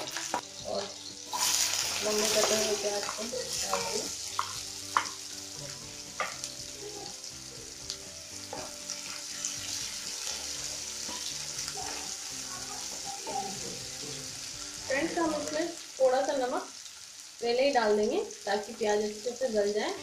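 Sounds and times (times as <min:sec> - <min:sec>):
onions sizzling in hot oil: 0:00.0 - 0:20.0
wooden spatula knocking on pan: 0:02.4 - 0:05.2, 0:06.2 - 0:06.4.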